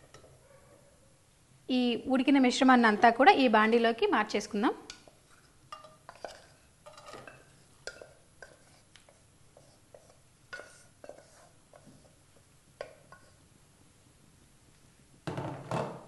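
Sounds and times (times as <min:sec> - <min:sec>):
wooden spatula scraping a pan: 0:05.2 - 0:12.2, 0:12.8 - 0:13.4.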